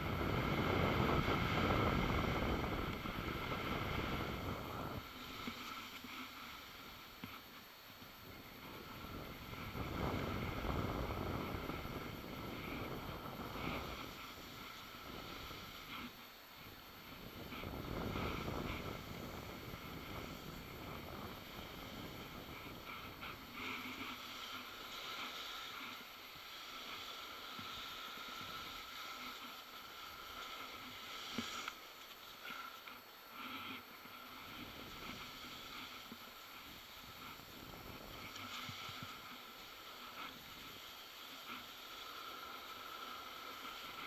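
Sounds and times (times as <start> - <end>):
wind rushing over microphone: 0.0 - 5.1, 8.6 - 15.8, 17.1 - 23.2
skis scraping on snow: 0.0 - 6.9, 8.6 - 16.2, 17.1 - 44.0.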